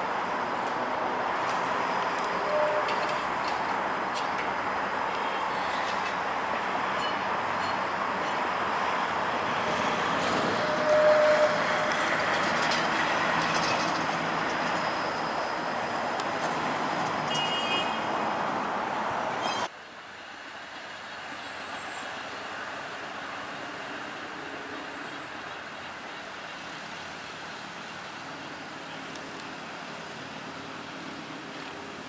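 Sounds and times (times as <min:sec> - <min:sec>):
streetcar rushing noise: 0:00.0 - 0:32.0
brief tone: 0:02.4 - 0:03.1, 0:10.7 - 0:11.6.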